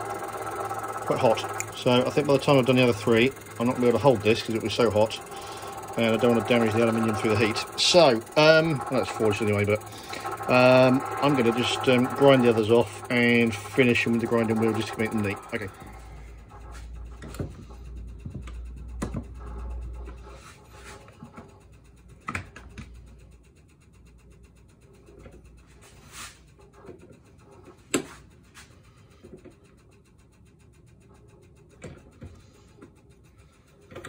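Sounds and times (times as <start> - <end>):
low hum: 0.0 - 23.4.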